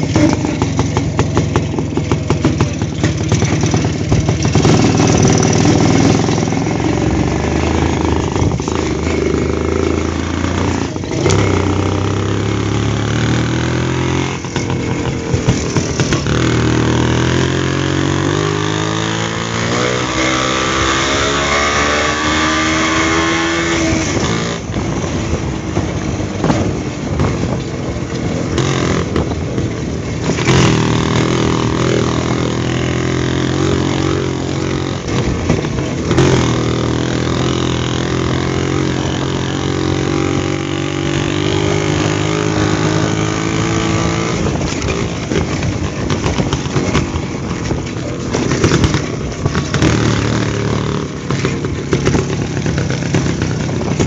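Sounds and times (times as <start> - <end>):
two-stroke motorcycle engine: 0.0 - 54.0
motorcycle jolting knocks: 44.4 - 54.0.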